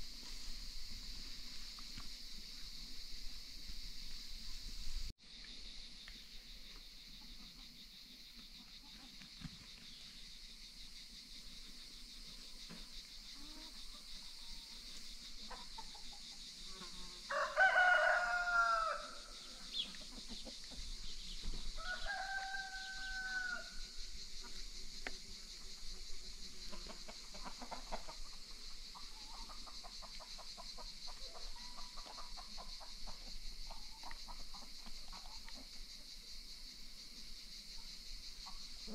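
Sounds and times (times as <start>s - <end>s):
high insect hum: 0.0s - 38.9s
chickens clucking: 8.4s - 9.8s, 15.4s - 16.4s, 19.4s - 21.6s, 26.5s - 35.9s
rooster crowing: 17.2s - 19.4s, 21.8s - 23.9s.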